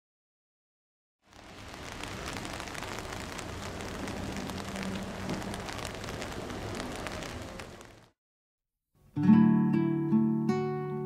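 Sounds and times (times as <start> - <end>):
rain falling on water: 1.2 - 8.2.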